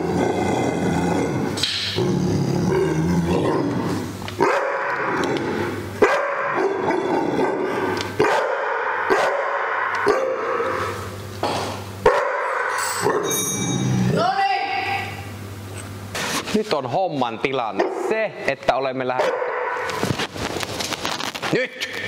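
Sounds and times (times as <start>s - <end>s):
dog barking: 4.4s - 4.9s, 6.0s - 6.9s, 8.2s - 10.7s, 12.0s - 12.8s, 19.2s - 20.0s.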